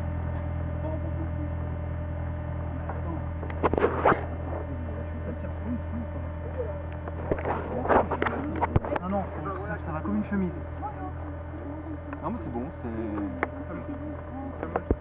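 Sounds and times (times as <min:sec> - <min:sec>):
faint voices: 0:00.0 - 0:15.0
steady low hum: 0:00.0 - 0:15.0.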